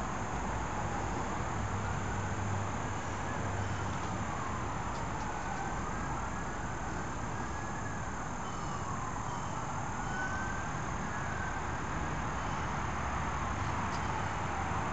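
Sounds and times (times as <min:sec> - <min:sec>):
outdoor background noise: 0:00.0 - 0:14.9
siren wailing: 0:01.8 - 0:12.7.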